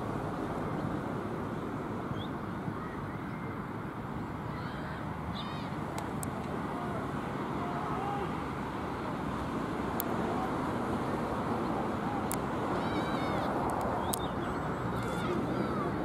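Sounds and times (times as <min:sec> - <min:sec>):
faint distant voices: 0:02.2 - 0:16.0
sharp clicks: 0:13.6 - 0:14.3.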